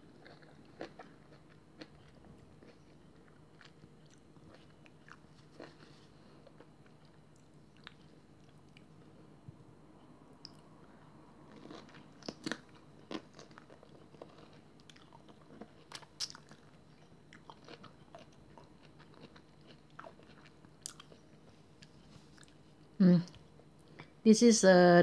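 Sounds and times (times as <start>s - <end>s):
person biting and chewing: 0.1s - 5.9s, 11.5s - 21.2s.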